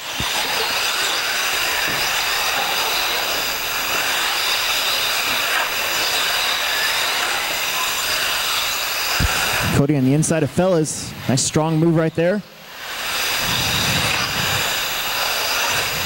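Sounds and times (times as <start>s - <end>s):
electric motors whining: 0.0s - 16.0s.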